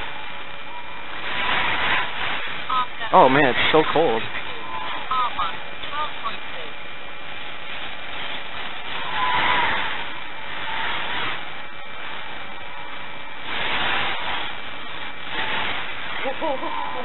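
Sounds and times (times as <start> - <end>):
racing drones buzzing: 0.0 - 17.0
drone motor pitch rising: 7.2 - 17.0.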